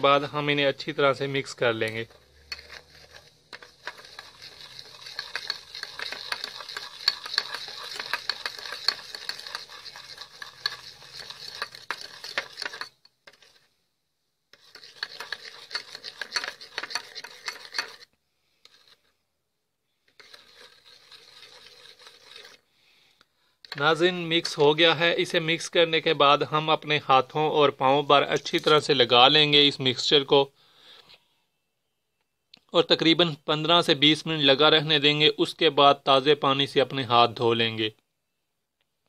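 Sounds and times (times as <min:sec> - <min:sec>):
metal spoon stirring paste in bowl: 0:00.0 - 0:13.8, 0:14.5 - 0:19.2, 0:19.9 - 0:22.7, 0:23.6 - 0:30.1.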